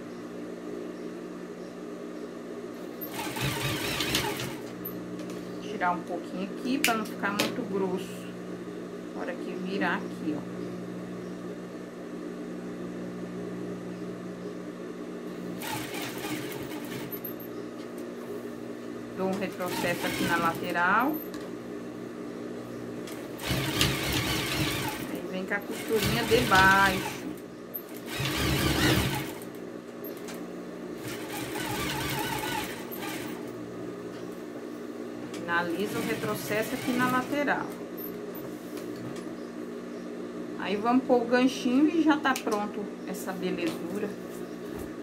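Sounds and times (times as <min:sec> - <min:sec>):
sewing machine motor humming: 0:03.0 - 0:04.8, 0:15.6 - 0:17.2, 0:19.5 - 0:20.8, 0:23.1 - 0:29.5, 0:31.0 - 0:33.5, 0:35.6 - 0:37.6.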